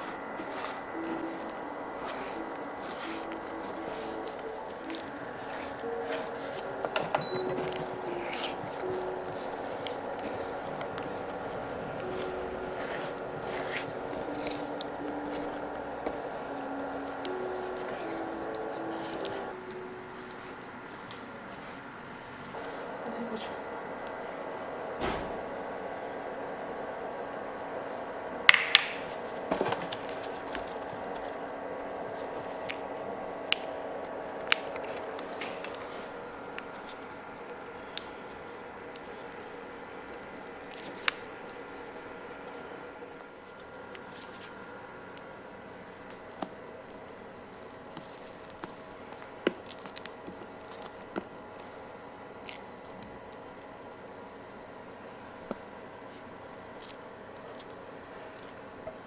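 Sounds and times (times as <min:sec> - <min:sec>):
spatula stirring caramel: 0:00.0 - 0:19.5
steady hum: 0:00.0 - 0:59.0.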